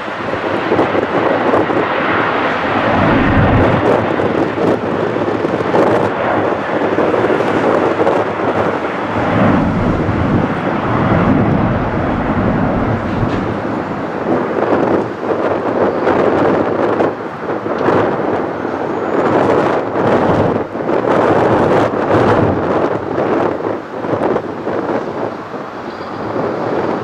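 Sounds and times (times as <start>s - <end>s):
jet airliner climbing: 0.0s - 27.0s.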